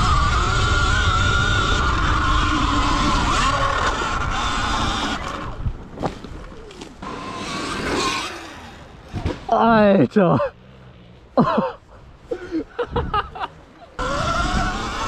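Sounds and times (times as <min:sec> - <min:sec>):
electric dirt bike motor whining: 0:00.0 - 0:09.4, 0:14.0 - 0:15.0.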